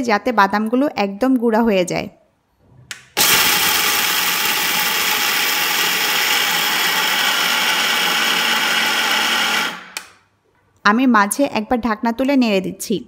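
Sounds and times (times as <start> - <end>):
mixer grinder grinding peanuts: 3.2 - 10.0.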